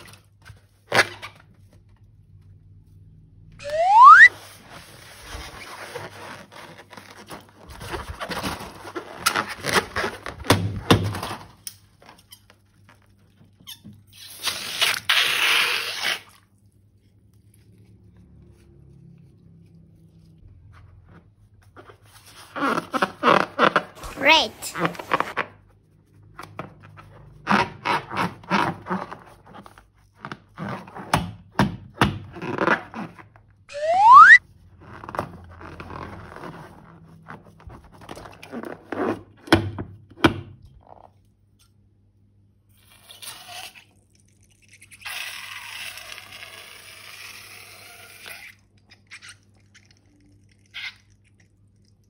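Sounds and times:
rising squeak: 3.6s - 4.3s, 33.7s - 34.4s.

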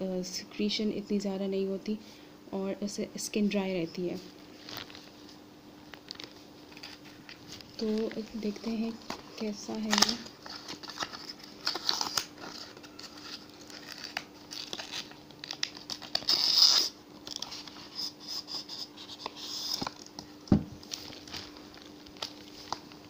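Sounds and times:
cardboard crinkling and tearing: 6.0s - 18.0s, 20.8s - 23.0s.

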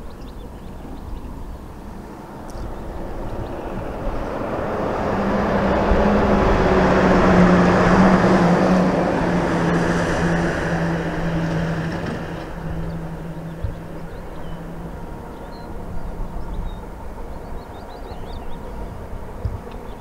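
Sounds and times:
diesel locomotive engine drone: 0.0s - 20.0s
train wheels rumbling: 2.7s - 17.1s.

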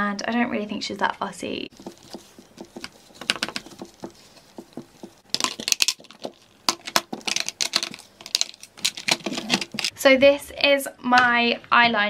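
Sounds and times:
makeup products clattering in tray: 5.4s - 9.9s.

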